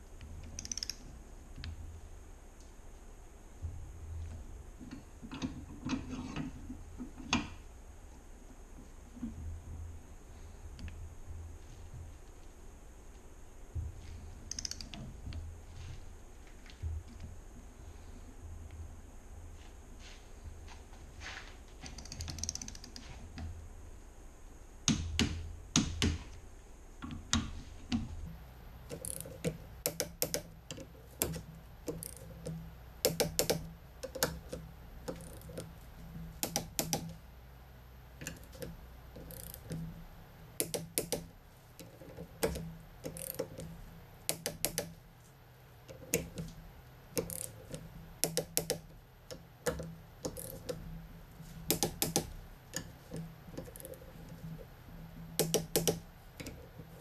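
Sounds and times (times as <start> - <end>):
torque wrench ratchet clicking: 0.6 - 1.0, 14.5 - 15.0, 28.9 - 30.5, 31.2 - 34.4, 35.1 - 35.7, 39.2 - 39.8, 42.4 - 43.6, 47.2 - 48.8.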